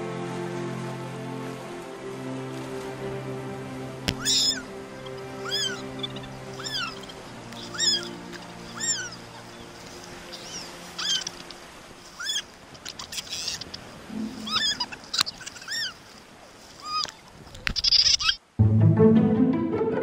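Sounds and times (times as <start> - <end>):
low sustained musical notes: 0.0 - 12.2, 14.0 - 15.2, 18.6 - 20.0
short animal calls: 4.2 - 4.6, 6.6 - 9.2, 10.4 - 11.3, 12.2 - 12.5, 13.1 - 16.0.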